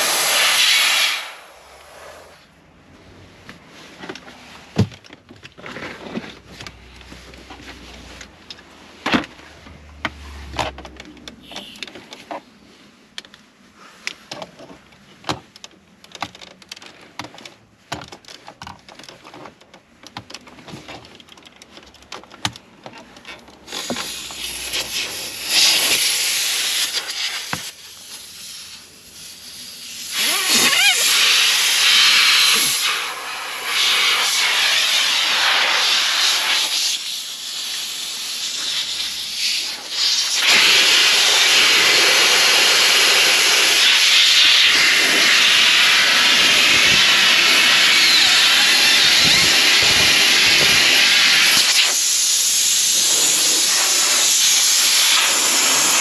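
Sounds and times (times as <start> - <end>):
compressed air hissing: 0.0 - 2.5, 23.6 - 56.0.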